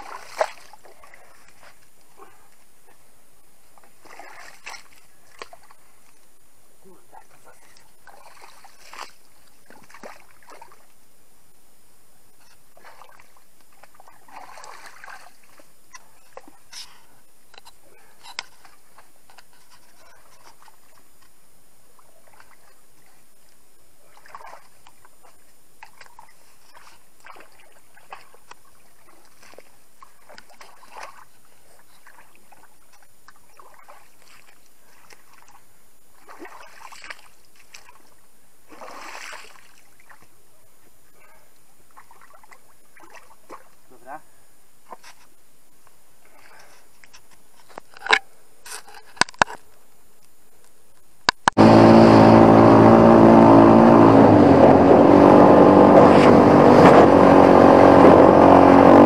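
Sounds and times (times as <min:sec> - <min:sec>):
hands splashing in muddy water: 0:00.0 - 0:02.4, 0:03.8 - 0:05.8, 0:07.2 - 0:10.9, 0:12.8 - 0:15.7, 0:24.0 - 0:31.3, 0:32.0 - 0:35.6, 0:36.2 - 0:40.2, 0:42.0 - 0:43.7.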